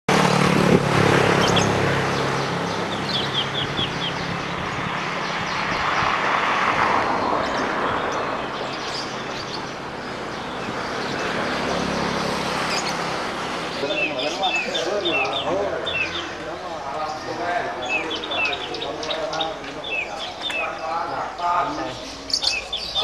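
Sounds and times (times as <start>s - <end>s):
engine running: 0.1s - 5.6s
high bird chirps: 17.0s - 23.0s.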